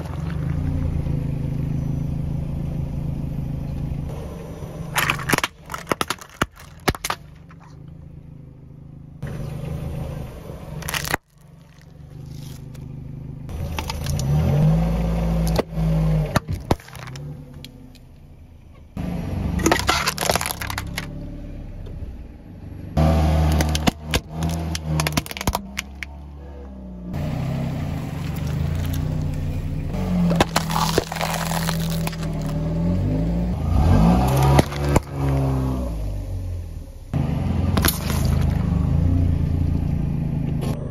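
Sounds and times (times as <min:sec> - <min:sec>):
car engine hum: 0:00.0 - 0:40.9
plastic and cans crushing: 0:04.9 - 0:07.8, 0:10.8 - 0:12.8, 0:13.6 - 0:14.3, 0:16.4 - 0:17.3, 0:19.6 - 0:21.1, 0:23.5 - 0:26.1, 0:30.2 - 0:32.6, 0:34.2 - 0:35.4, 0:37.8 - 0:38.6.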